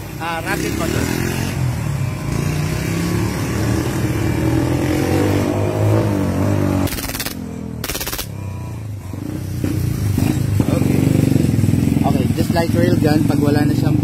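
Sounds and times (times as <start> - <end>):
vehicle engine running: 6.8 - 14.0
airsoft pistol full-auto bursts: 6.9 - 8.3.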